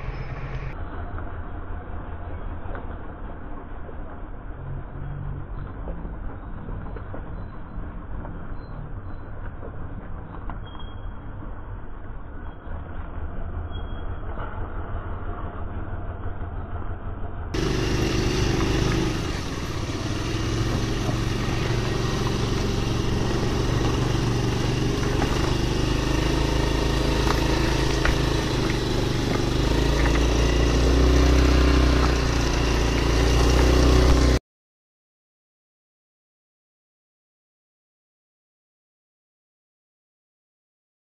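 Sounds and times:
car engine on dirt road: 0.0s - 34.4s
motorcycle engine: 12.6s - 34.4s.

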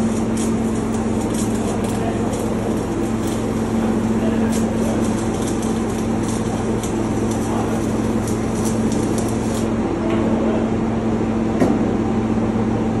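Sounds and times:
arc welding crackling: 0.0s - 9.9s
low machinery hum: 0.0s - 13.0s.

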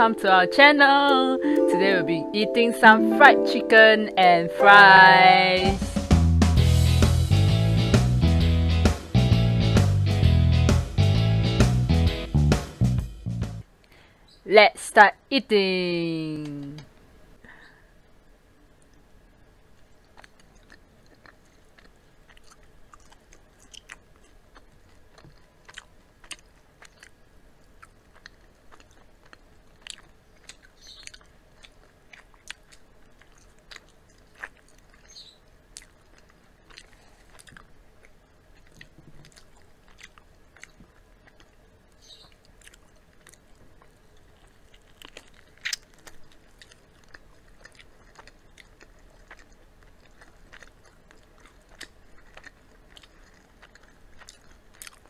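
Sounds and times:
crunching fried chicken: 19.7s - 55.0s
wet chewing: 19.7s - 55.0s.

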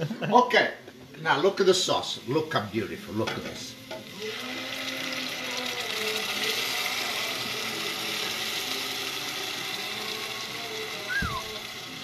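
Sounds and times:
oil sizzling: 1.1s - 12.0s
sauce pouring into a pot: 3.6s - 12.0s.

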